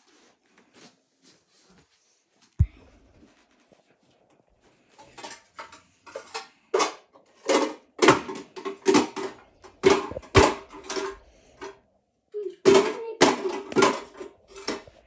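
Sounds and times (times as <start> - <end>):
plastic objects clattering: 4.8 - 11.8, 12.6 - 15.0.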